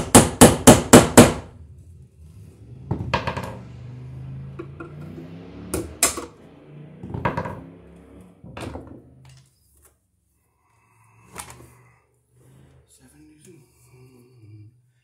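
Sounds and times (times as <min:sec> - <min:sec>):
hammer knocking on wood: 0:00.0 - 0:01.4.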